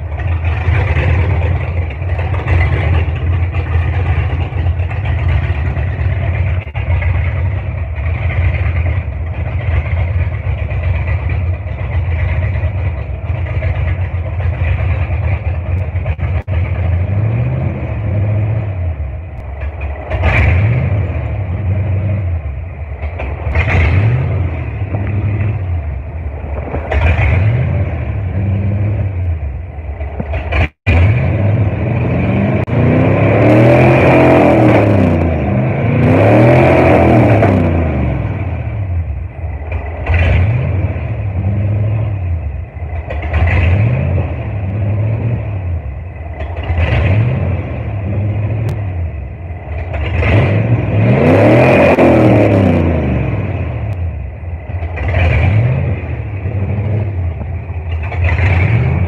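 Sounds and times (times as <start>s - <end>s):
car engine revving: 0.0s - 59.0s.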